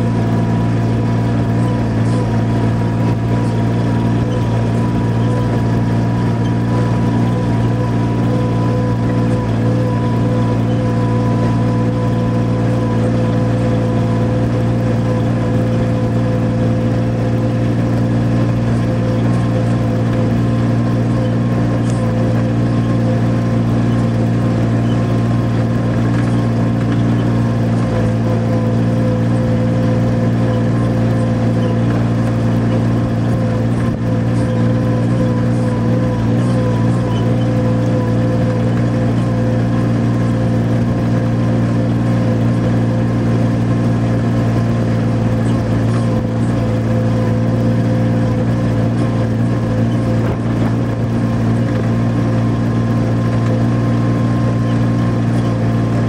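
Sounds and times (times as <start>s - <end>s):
vehicle engine droning: 0.0s - 56.0s.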